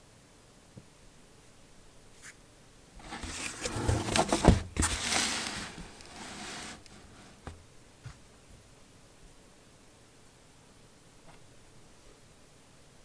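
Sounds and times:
cardboard box rustling and scraping: 0:03.0 - 0:07.6.

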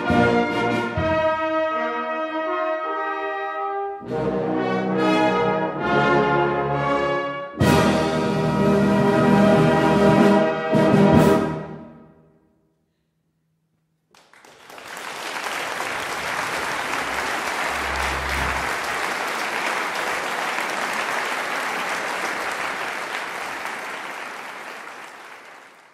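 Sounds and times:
audience applause: 0:14.1 - 0:25.9
brass band chord ringing: 0:17.0 - 0:19.2.

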